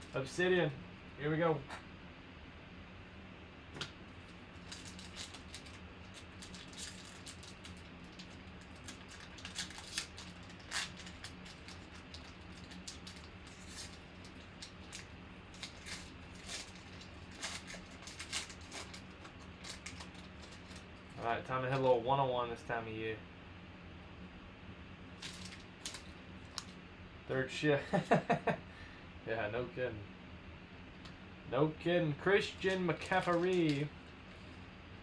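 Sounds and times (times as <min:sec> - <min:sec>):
faint steady hum: 0:00.0 - 0:35.0
foil wrapper crinkling: 0:04.2 - 0:21.9, 0:25.2 - 0:26.8, 0:32.5 - 0:33.9.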